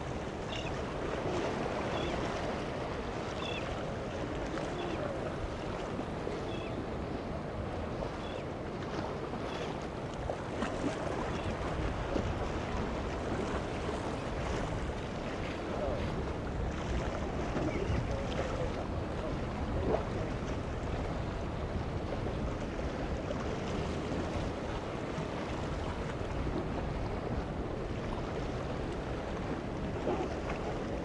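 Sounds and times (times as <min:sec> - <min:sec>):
choppy water: 0:00.0 - 0:31.0
wind on microphone: 0:00.0 - 0:31.0.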